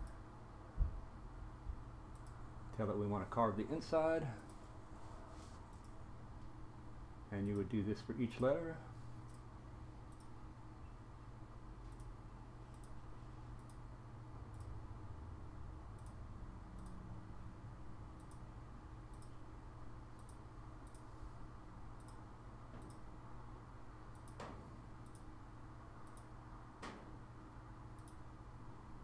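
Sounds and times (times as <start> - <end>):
low steady hum: 0.0 - 29.0
computer mouse clicking: 2.1 - 2.4, 10.1 - 10.3, 11.9 - 12.1, 12.7 - 13.0, 13.6 - 13.8, 14.5 - 14.7, 16.0 - 16.2, 18.2 - 18.4, 19.1 - 19.4, 20.2 - 21.1, 22.0 - 23.0, 24.1 - 25.3, 26.0 - 27.0, 28.0 - 28.2.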